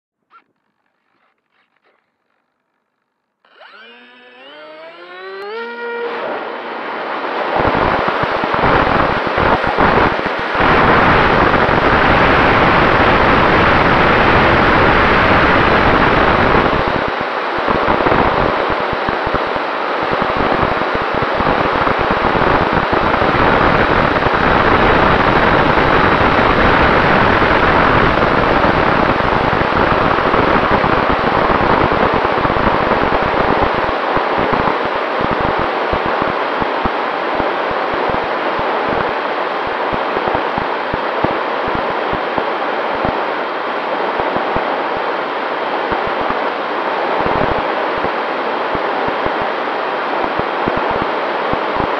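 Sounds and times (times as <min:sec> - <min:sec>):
electric motor and propeller: 0:00.3 - 0:06.6
wind rushing over microphone: 0:06.3 - 0:51.9.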